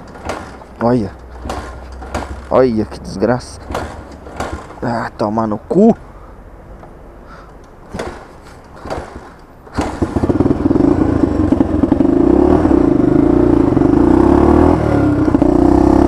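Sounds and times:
motorcycle engine kick-started: 3.7s - 4.8s, 8.0s - 12.8s.

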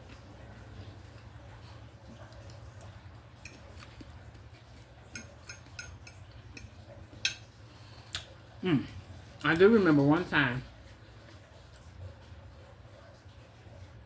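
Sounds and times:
low steady hum: 0.0s - 14.0s
fork clinking on plate: 5.1s - 7.4s.

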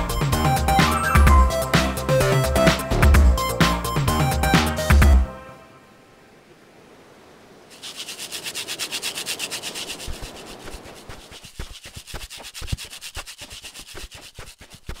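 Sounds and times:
stick rubbing against sticks: 7.7s - 15.0s.

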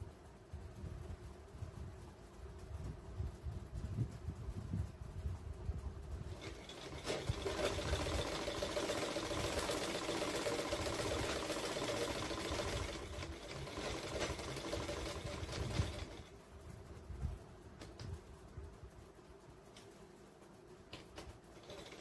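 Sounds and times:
sewing machine stitching: 6.3s - 16.4s, 21.2s - 22.0s.

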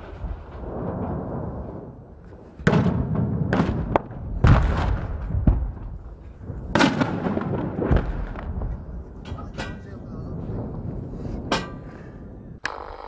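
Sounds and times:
steady low rumble: 3.2s - 12.6s.

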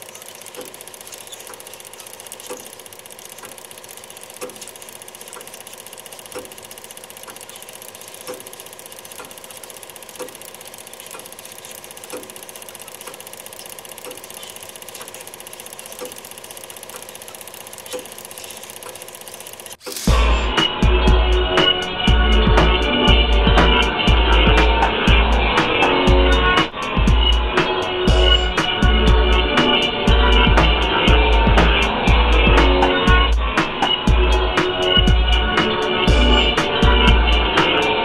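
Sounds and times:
projector click: 0.0s - 20.2s
film projector whirring: 0.0s - 38.0s.

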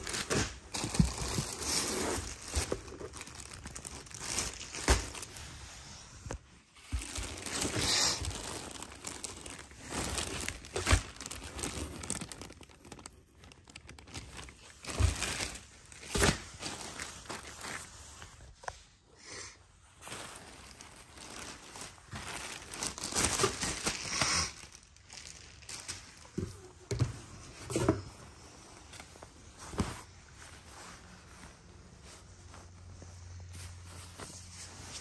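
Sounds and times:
plastic bag crinkling: 0.0s - 18.5s, 20.0s - 27.0s.

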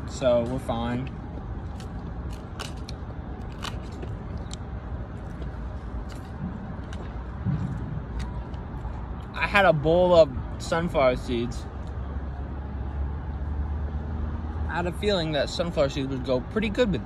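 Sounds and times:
low hum of traffic: 0.0s - 17.0s
chewing crisp lettuce: 1.7s - 4.6s.

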